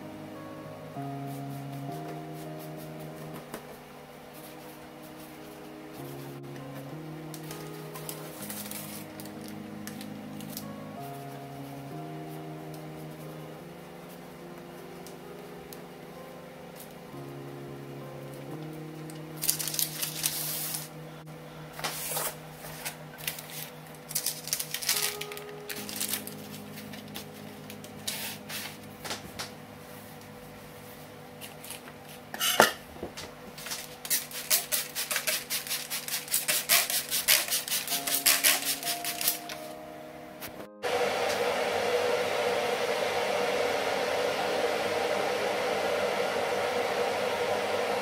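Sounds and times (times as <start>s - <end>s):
soft background music: 0.0s - 48.0s
paper and cloth rustling: 19.4s - 20.9s.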